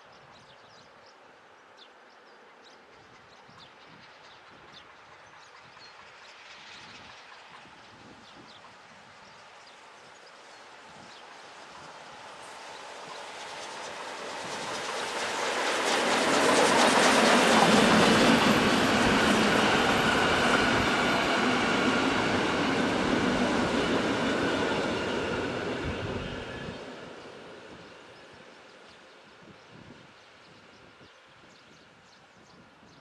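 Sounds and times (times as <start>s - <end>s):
steam train passing: 2.4s - 32.7s.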